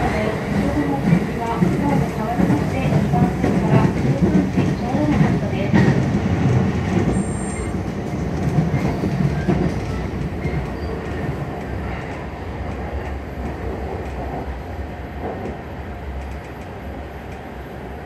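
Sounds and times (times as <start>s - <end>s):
clickety-clack of rails: 0.0s - 18.0s
train wheels rumbling on track: 0.0s - 18.0s.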